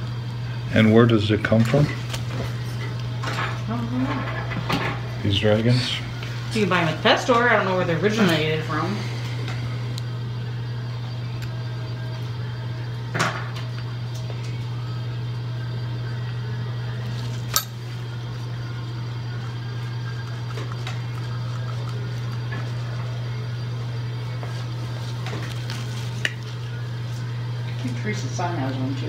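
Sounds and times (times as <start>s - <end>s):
dental suction humming: 16.0s - 27.7s
metal dental instruments clicking: 17.5s - 17.8s.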